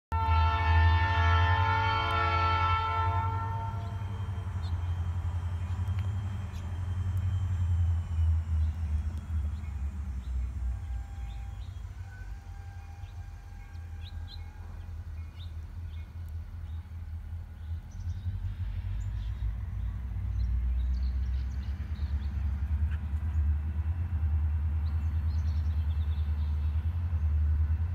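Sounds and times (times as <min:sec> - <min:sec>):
locomotive horn: 0:00.1 - 0:04.5, 0:10.6 - 0:15.6
birds chirping: 0:03.7 - 0:23.6.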